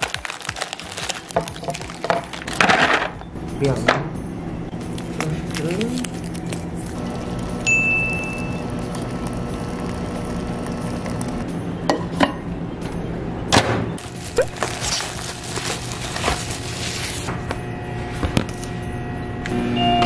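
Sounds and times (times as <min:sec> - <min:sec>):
plastic film crinkling: 0:00.0 - 0:03.1, 0:04.8 - 0:07.0, 0:14.0 - 0:17.4
packaging knocks: 0:00.0 - 0:03.2, 0:14.0 - 0:17.3.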